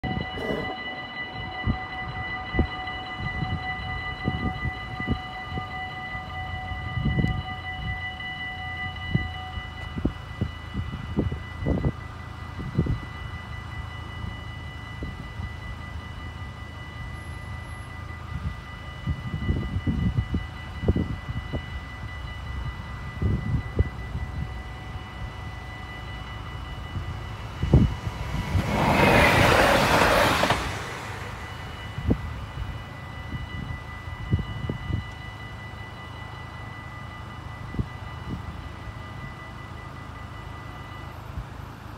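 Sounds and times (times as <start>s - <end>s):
level crossing warning bells: 0.0s - 41.9s.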